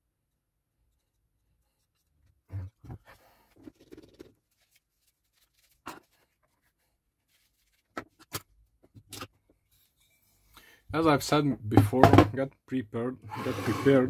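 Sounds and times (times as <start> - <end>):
rough scraping: 13.3 - 14.0.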